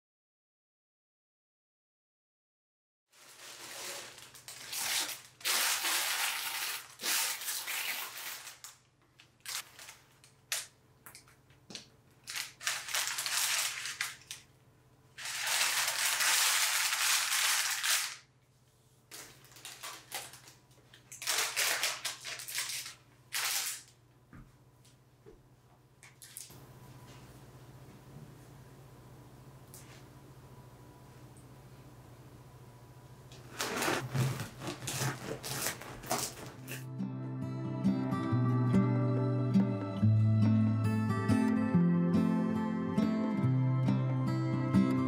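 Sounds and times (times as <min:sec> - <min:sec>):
bread crust crunching under knife: 0:33.4 - 0:36.9.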